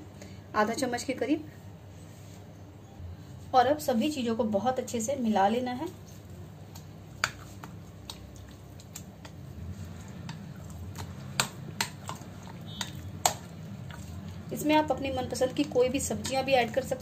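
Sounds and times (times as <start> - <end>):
hand mixing thick batter: 5.5 - 17.0.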